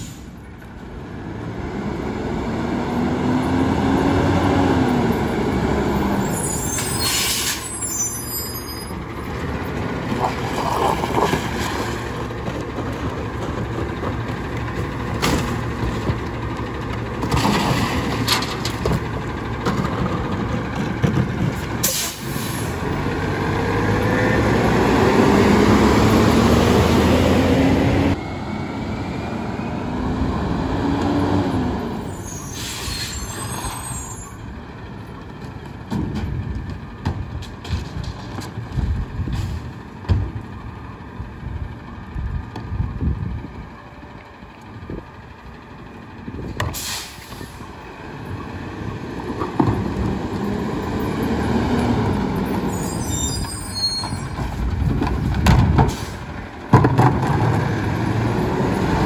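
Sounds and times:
air brakes hissing: 0:00.0 - 0:00.4, 0:06.2 - 0:09.0, 0:21.8 - 0:22.7, 0:32.0 - 0:34.4, 0:46.6 - 0:47.7, 0:55.8 - 0:56.4
diesel engine revving: 0:00.8 - 0:59.0.

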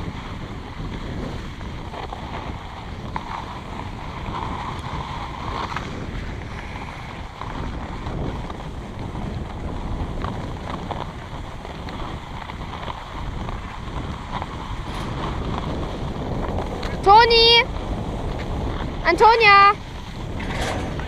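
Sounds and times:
skis sliding over packed snow: 0:00.0 - 0:21.0
wind buffeting microphone: 0:00.0 - 0:21.0
faint scrapes: 0:14.3 - 0:16.9.

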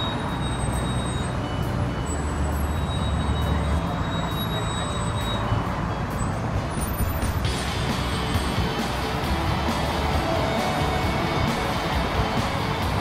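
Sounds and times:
highway traffic: 0:00.0 - 0:13.0.

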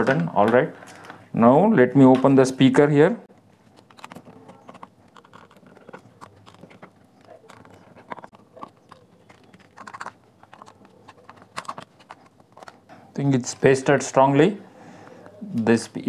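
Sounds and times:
hands working on plastic housing: 0:03.3 - 0:13.8
screwdriver clicks and scrapes: 0:03.4 - 0:12.9.

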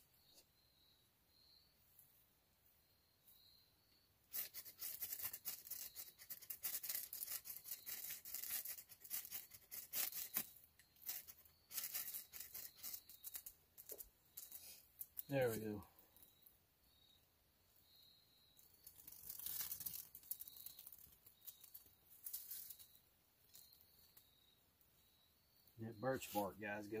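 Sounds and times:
knife scraping ferro rod: 0:04.3 - 0:15.3.

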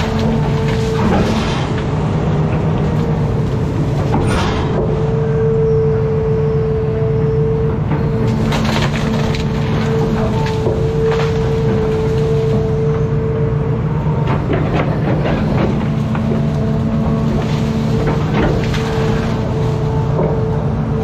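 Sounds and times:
branches cracking and snapping: 0:00.0 - 0:04.7, 0:07.9 - 0:13.2, 0:14.2 - 0:21.0
excavator diesel engine and hydraulics: 0:00.0 - 0:21.0.

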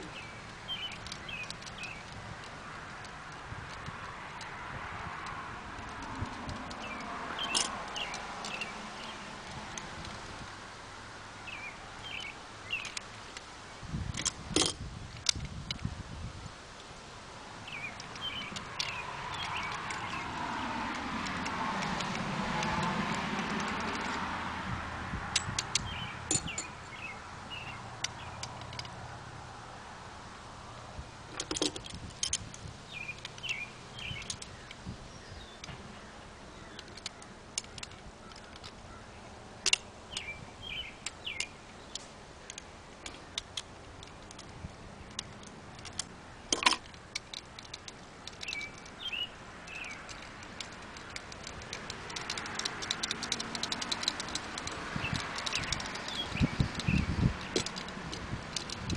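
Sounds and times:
birds chirping: 0:00.0 - 0:10.3, 0:11.4 - 0:14.2, 0:17.6 - 0:24.3, 0:25.4 - 0:28.9, 0:31.4 - 0:58.9
small metal parts clinking: 0:00.7 - 0:04.5, 0:05.2 - 0:10.3, 0:14.1 - 0:15.8, 0:17.7 - 0:24.3, 0:25.3 - 0:28.9, 0:31.3 - 0:34.8, 0:36.7 - 0:38.8, 0:39.6 - 0:58.9.

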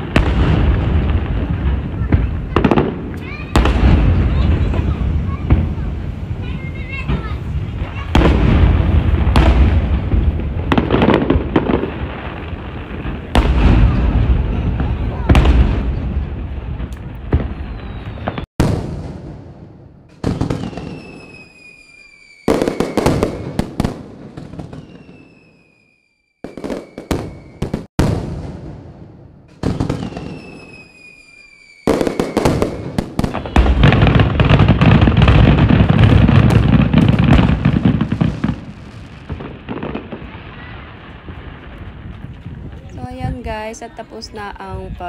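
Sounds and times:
firework crackle: 0:00.0 - 0:45.0
falling firework whistle: 0:16.9 - 0:18.8, 0:20.2 - 0:27.9, 0:29.6 - 0:35.4.

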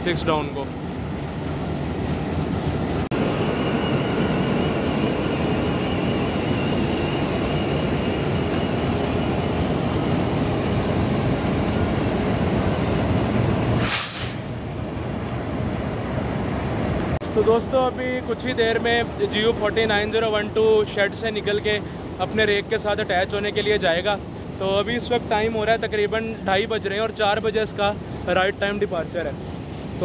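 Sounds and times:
high-pitched whine: 0:00.0 - 0:17.8
locomotive engine rumbling: 0:00.0 - 0:30.0.

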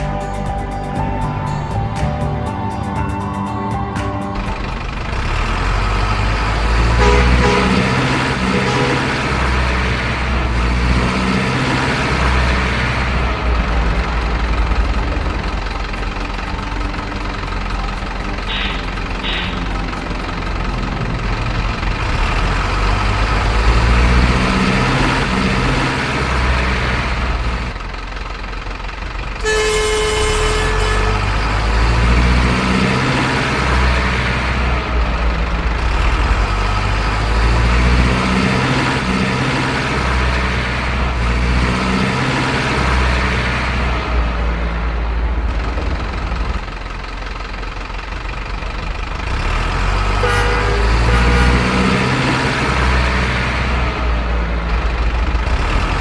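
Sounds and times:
diesel truck engine revving: 0:00.0 - 0:56.0
truck horn blast: 0:05.2 - 0:12.7, 0:18.2 - 0:19.9, 0:29.4 - 0:32.8, 0:50.0 - 0:53.0.

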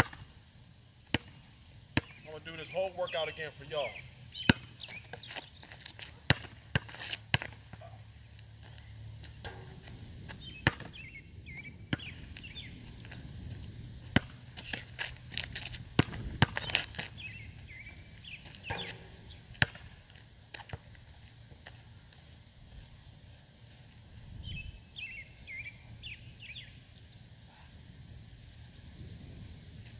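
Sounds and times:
basketball bouncing on asphalt: 0:00.0 - 0:00.2, 0:01.0 - 0:02.2, 0:04.4 - 0:22.0
birds chirping: 0:02.0 - 0:05.9, 0:10.3 - 0:13.3, 0:16.5 - 0:19.6, 0:22.2 - 0:27.7.

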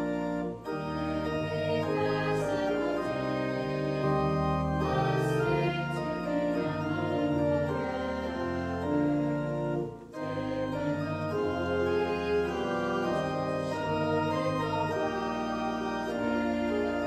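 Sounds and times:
organ playing sustained chords: 0:00.0 - 0:17.0.

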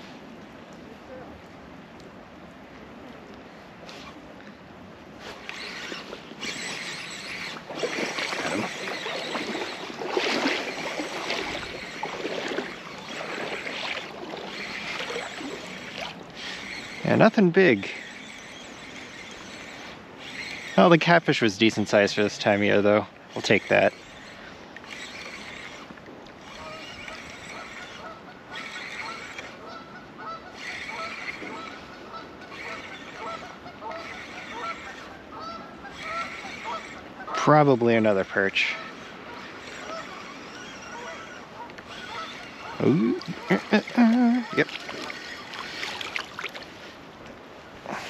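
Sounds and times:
small waves lapping: 0:00.0 - 0:48.0
geese honking: 0:26.6 - 0:37.5, 0:38.6 - 0:45.8.

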